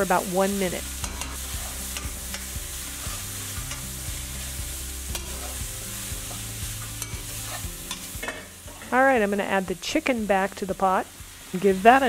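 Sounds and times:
vegetables sizzling in oil: 0.0s - 12.0s
metal utensil clicking on pan: 1.0s - 2.5s, 3.6s - 3.8s, 5.1s - 5.6s, 7.0s - 9.0s.

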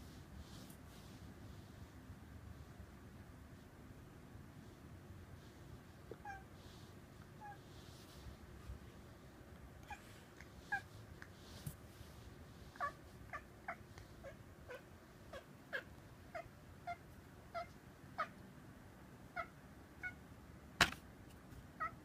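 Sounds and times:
cat chirping: 6.2s - 6.5s, 9.8s - 11.0s, 12.7s - 18.4s, 19.3s - 20.2s, 21.8s - 22.0s.

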